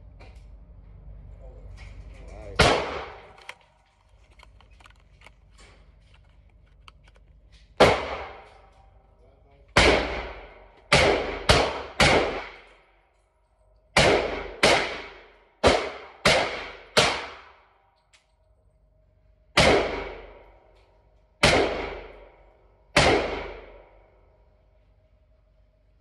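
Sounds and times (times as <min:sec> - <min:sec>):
single gunshots echoing indoors: 0:02.6 - 0:03.3, 0:09.7 - 0:12.8, 0:14.0 - 0:17.7, 0:21.4 - 0:24.2.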